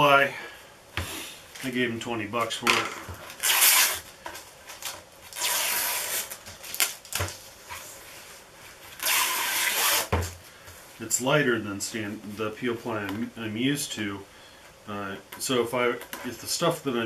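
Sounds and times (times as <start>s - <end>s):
peel ply tearing: 3.3s - 4.1s, 4.8s - 7.4s, 9.0s - 10.3s.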